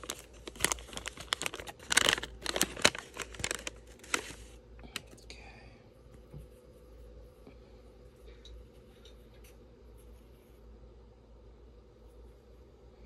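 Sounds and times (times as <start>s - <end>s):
paper wrapper crinkling: 0.0s - 5.2s.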